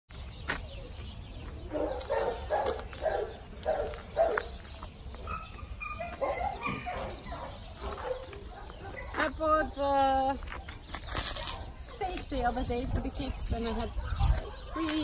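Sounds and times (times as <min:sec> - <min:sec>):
dog barking: 0:01.7 - 0:04.6, 0:05.2 - 0:09.2.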